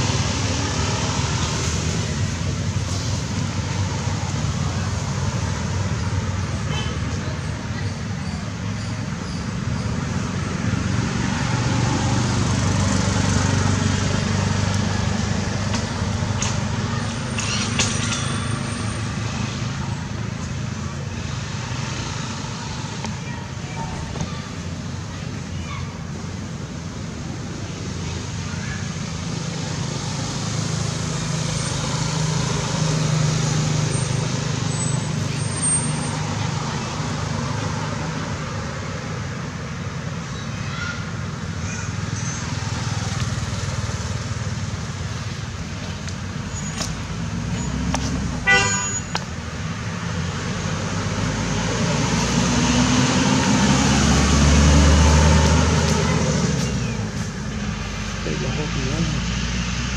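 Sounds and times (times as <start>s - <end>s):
vehicle engine humming: 0.0s - 59.9s
vehicle engine drone passing: 9.9s - 17.2s, 49.7s - 59.9s.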